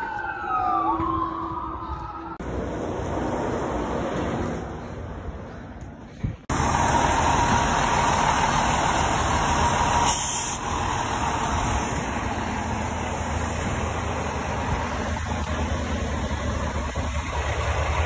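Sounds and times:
diesel engine running: 0:02.4 - 0:18.0
air hiss burst: 0:10.0 - 0:10.7.

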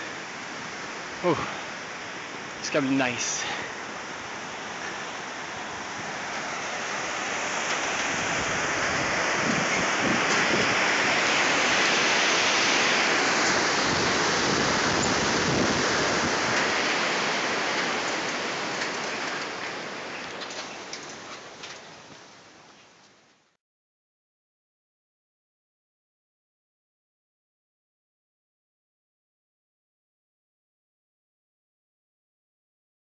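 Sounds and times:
stream rushing over rocks: 0:00.0 - 0:23.2.

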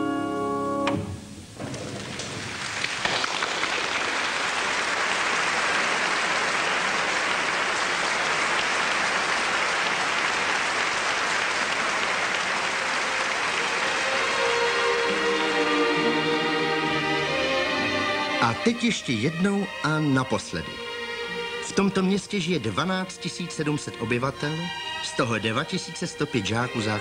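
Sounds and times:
audience applause: 0:01.6 - 0:17.3.

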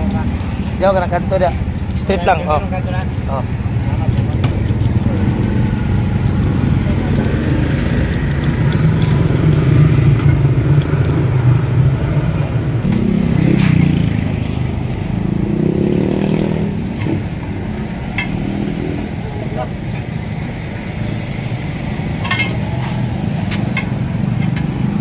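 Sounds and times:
motor engine running: 0:00.0 - 0:10.8.

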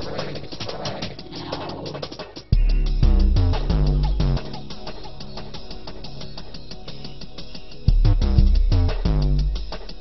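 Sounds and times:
bass-heavy music: 0:00.0 - 0:10.0.

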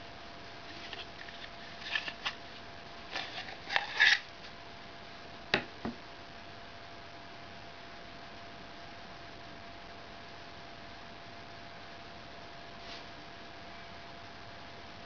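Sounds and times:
knife sheath clicks and scrapes: 0:03.1 - 0:04.3.

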